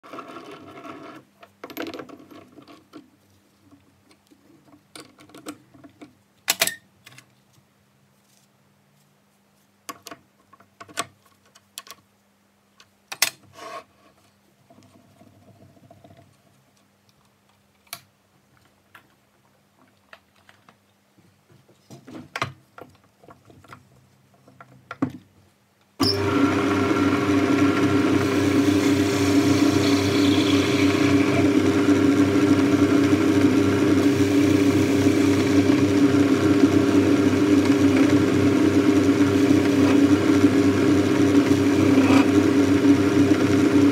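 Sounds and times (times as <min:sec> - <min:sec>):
lathe running hum: 0:26.0 - 0:43.9.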